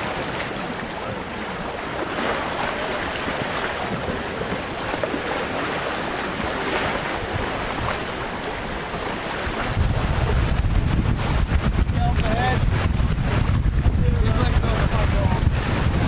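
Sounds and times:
choppy water washing: 0.0 - 16.0
wind noise on microphone: 9.3 - 16.0.

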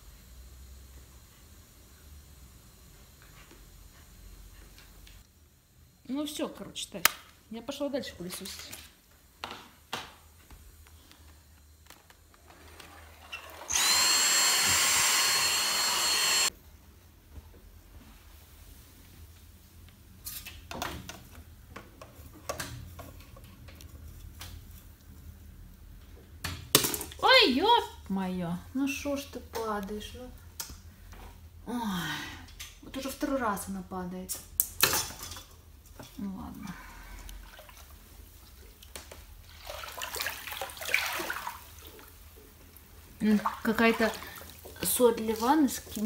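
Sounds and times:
bathwater splashing and pouring: 37.4 - 38.8, 39.4 - 42.2, 43.2 - 46.0.

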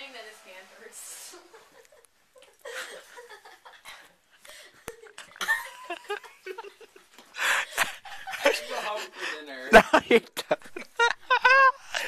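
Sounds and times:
young men laughing: 1.5 - 12.0.

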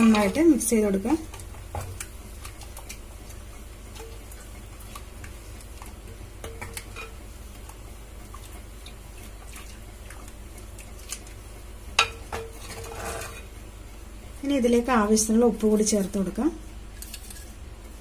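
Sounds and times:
low steady hum: 0.0 - 18.0
liquid swishing from stirring: 1.2 - 11.6.

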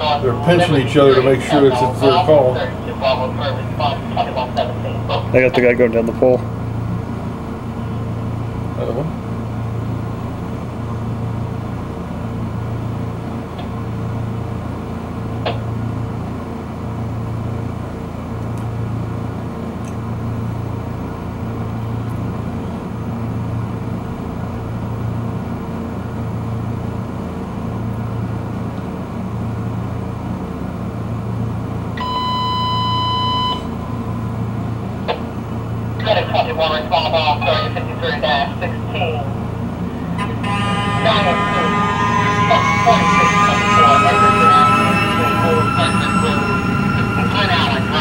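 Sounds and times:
fire engine idling: 0.0 - 10.9, 32.0 - 43.7
electronic alert tone beeping: 40.0 - 48.0.

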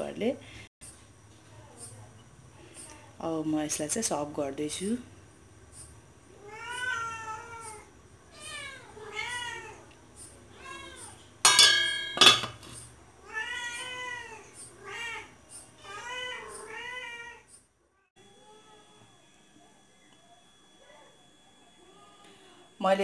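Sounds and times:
cat meowing: 6.4 - 9.8, 10.6 - 11.2, 13.2 - 17.5
metal pot lid clanging: 11.4 - 12.8.

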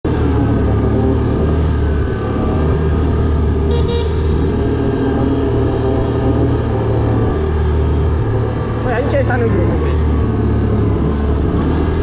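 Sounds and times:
atv engine running: 0.0 - 12.0
two-part horn toot: 3.6 - 4.6.

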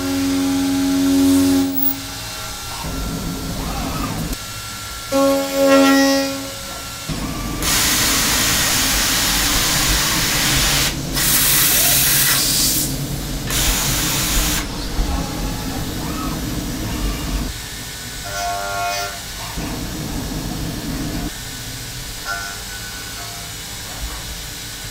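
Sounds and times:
cutter whine cutting metal: 0.0 - 10.5
steady mechanical rumble: 6.5 - 18.2, 19.3 - 22.2
loud hissing air blasts: 7.1 - 15.0.

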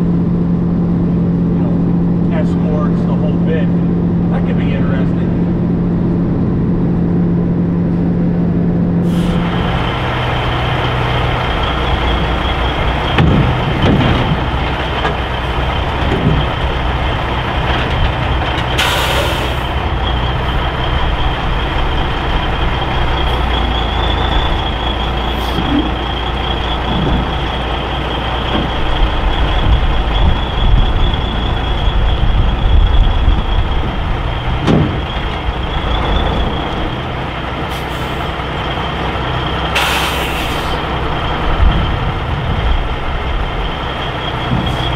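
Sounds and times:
diesel engine running with whine: 0.0 - 44.9
air brakes hiss: 9.0 - 9.5, 18.8 - 19.7, 39.7 - 40.8.

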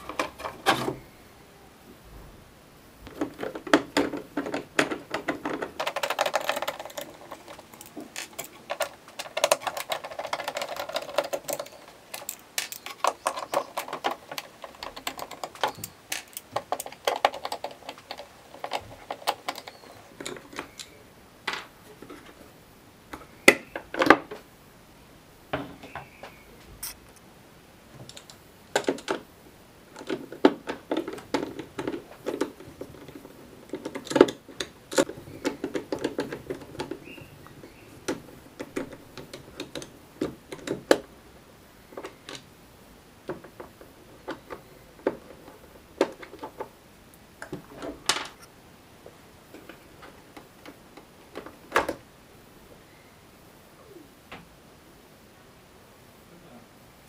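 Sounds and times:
sharp plastic knocks: 3.1 - 20.8
screwdriver clicking and scraping: 3.1 - 20.9, 26.8 - 27.2.

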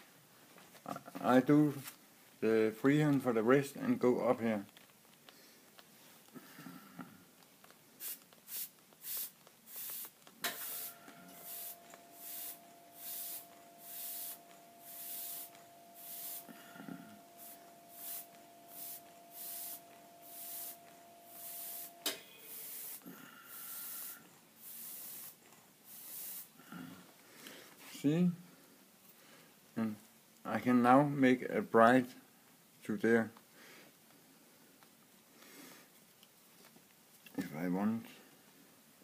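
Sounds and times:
airbrush hissing bursts: 8.0 - 26.6
steady hum: 9.8 - 25.4.

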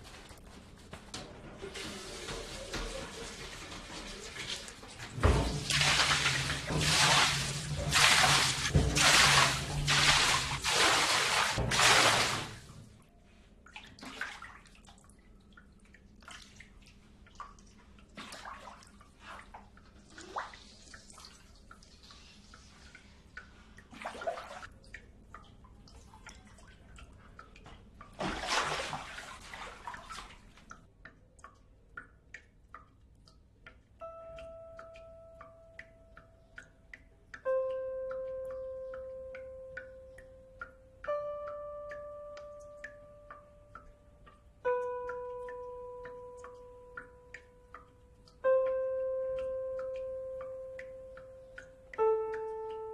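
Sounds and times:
water dripping: 0.0 - 52.9
water gushing onto tiled floor: 1.6 - 12.8, 28.1 - 30.4.

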